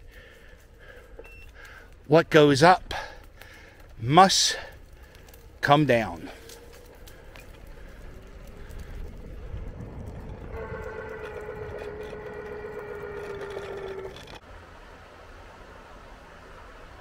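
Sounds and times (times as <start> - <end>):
wind and road noise: 0.0 - 17.0
electric scooter whine: 6.4 - 17.0.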